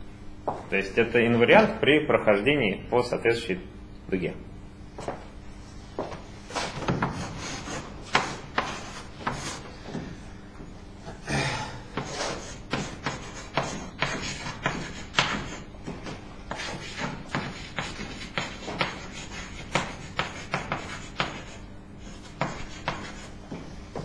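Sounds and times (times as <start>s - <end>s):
chalk scratching on blackboard: 6.5s - 9.6s, 12.0s - 23.4s.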